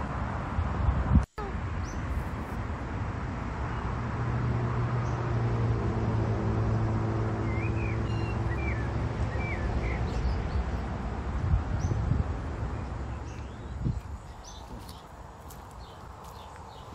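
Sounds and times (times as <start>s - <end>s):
small bird chirping: 13.1s - 16.9s.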